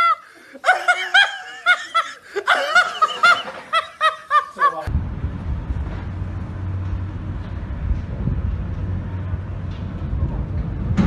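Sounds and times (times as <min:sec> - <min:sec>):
high-pitched laughter: 0:00.0 - 0:04.9
low steady rumble: 0:04.9 - 0:11.0.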